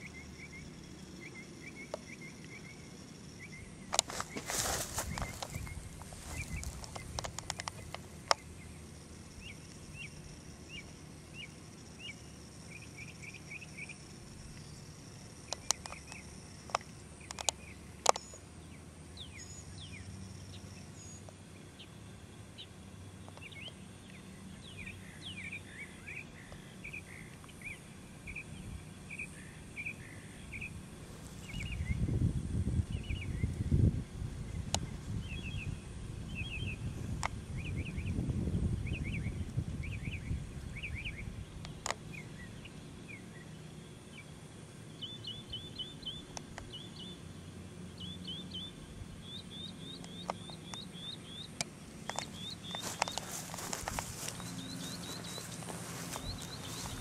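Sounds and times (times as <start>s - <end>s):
birds chirping: 0.0s - 57.0s
faint high insect buzz: 0.0s - 57.0s
sharp clicks: 6.8s - 8.4s, 15.5s - 18.4s.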